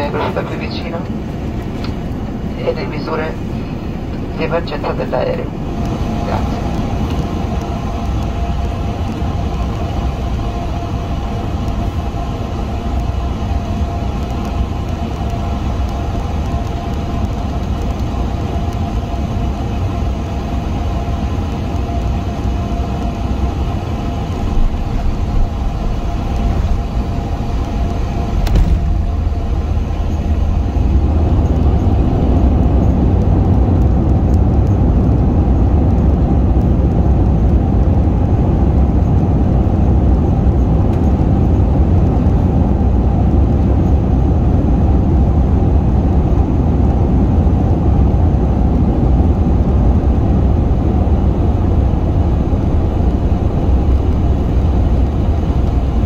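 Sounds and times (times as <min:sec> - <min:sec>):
engine and runway rumble: 0:00.0 - 0:56.0
short knock: 0:28.5 - 0:29.0.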